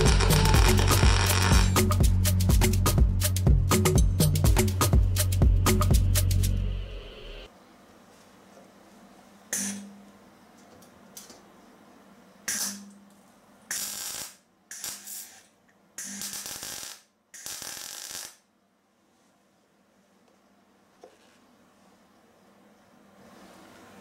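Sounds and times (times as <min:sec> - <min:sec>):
welder arc crackle and hiss: 0:00.0 - 0:02.0, 0:13.6 - 0:18.5.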